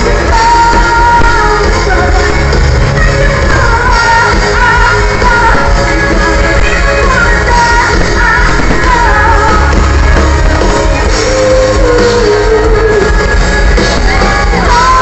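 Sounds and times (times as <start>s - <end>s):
heavy bass: 0.0s - 15.0s
live pop-rock band: 0.0s - 15.0s
woman singing: 0.0s - 15.0s.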